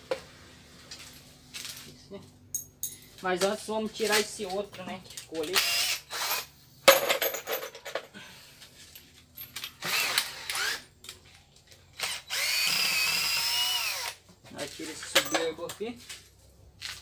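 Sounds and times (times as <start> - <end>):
cordless drill motor whine: 5.6 - 6.5, 9.8 - 10.8, 12.0 - 14.2.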